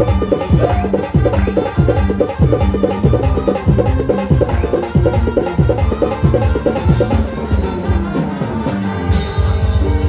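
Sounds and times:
live band with driving beat: 0:00.0 - 0:10.0.

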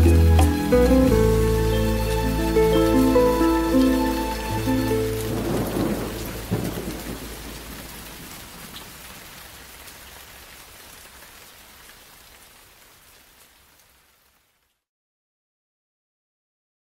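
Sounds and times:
rain falling: 0:00.0 - 0:14.9
thunder rumble and crack: 0:05.2 - 0:08.9.

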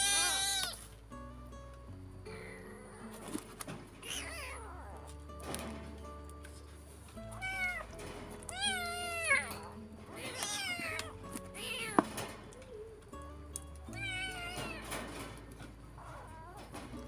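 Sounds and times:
kitten mewing: 0:00.0 - 0:00.9, 0:04.0 - 0:05.2, 0:07.4 - 0:07.9, 0:08.5 - 0:13.0, 0:13.9 - 0:14.9.

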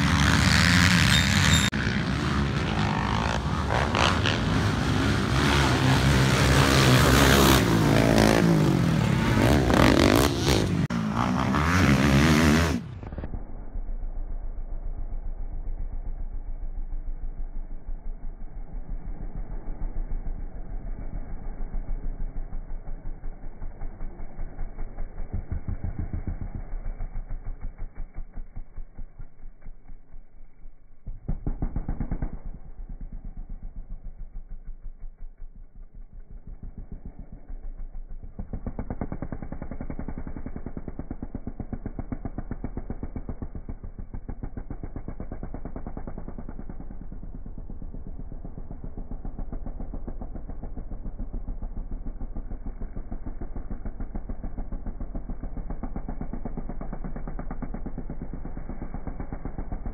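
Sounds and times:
quad engine revving: 0:00.0 - 0:13.5, 0:35.8 - 0:59.9.

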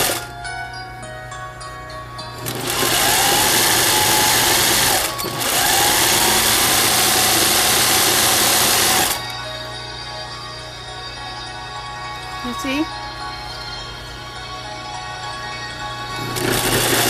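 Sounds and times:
sewing machine running: 0:00.0 - 0:00.3, 0:02.4 - 0:09.3, 0:16.2 - 0:17.0
motor whine: 0:00.0 - 0:17.0.

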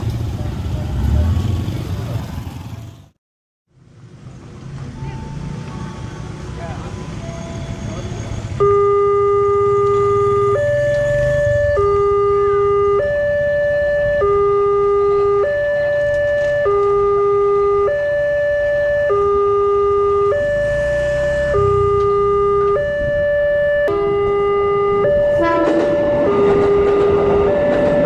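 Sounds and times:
two-tone crossing alarm: 0:07.0 - 0:28.0.

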